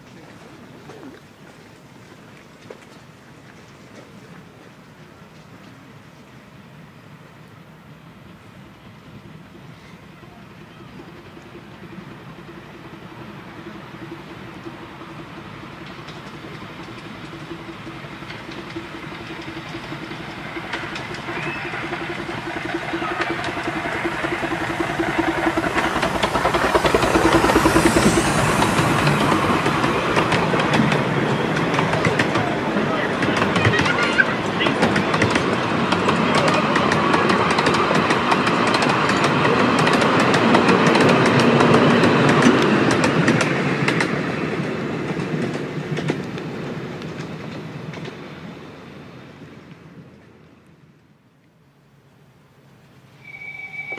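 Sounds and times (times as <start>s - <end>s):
wheels clicking over rails: 10.4s - 50.4s
steam locomotive puffing: 13.2s - 44.2s.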